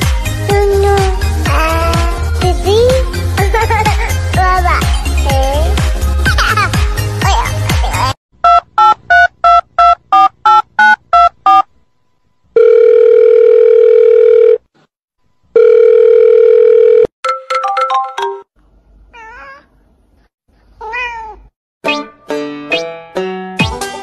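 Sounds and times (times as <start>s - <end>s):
music: 0.0s - 8.2s, 21.8s - 24.0s
keypad dialling beeps: 8.4s - 11.6s
telephone ringing tones: 12.6s - 14.6s, 15.6s - 17.1s.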